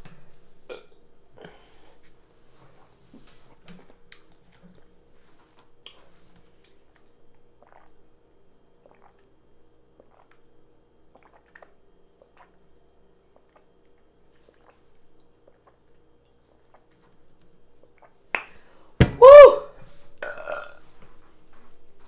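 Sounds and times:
swallowing while drinking: 7.6 - 8.0, 8.8 - 9.2, 11.1 - 12.6.

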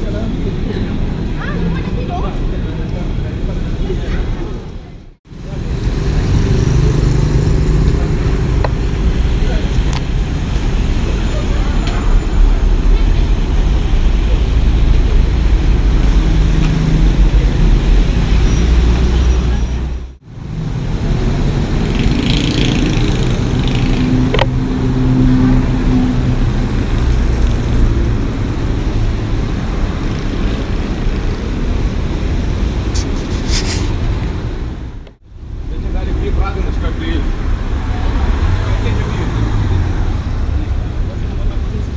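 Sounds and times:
car engine and tyres rumbling: 0.0 - 41.9.

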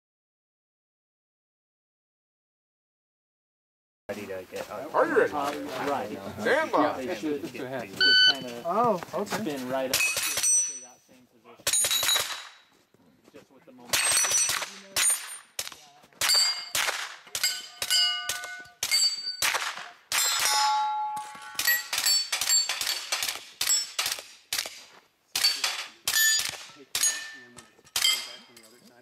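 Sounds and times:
steel targets ringing: 10.0 - 10.9, 16.2 - 19.5, 20.1 - 23.0, 25.4 - 28.7
carbine gunshots: 13.9 - 20.8, 21.5 - 28.4.

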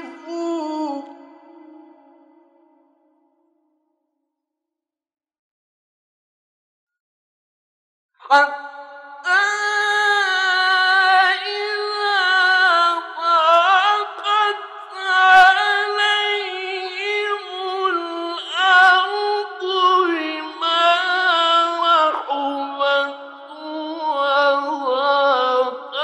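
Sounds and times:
man chanting melodically: 0.0 - 2.3, 9.3 - 26.0.

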